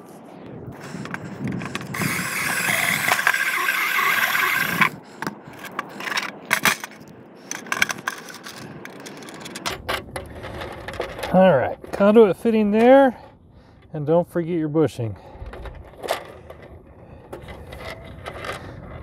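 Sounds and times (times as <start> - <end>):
cordless drill cutting plastic: 0.8 - 5.0.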